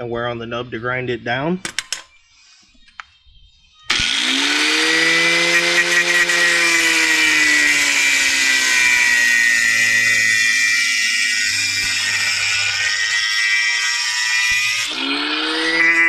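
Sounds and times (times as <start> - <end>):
angle grinder motor whining: 3.9 - 16.0.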